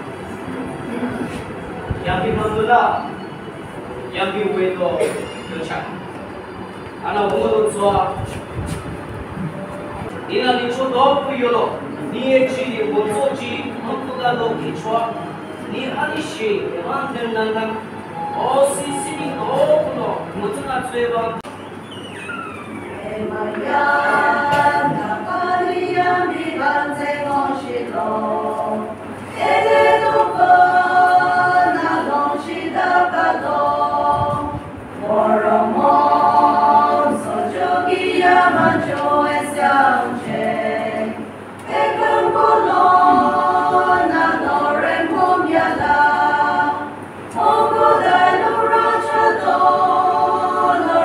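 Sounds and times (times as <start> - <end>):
choir singing a cappella: 10.5 - 21.4, 22.9 - 51.0.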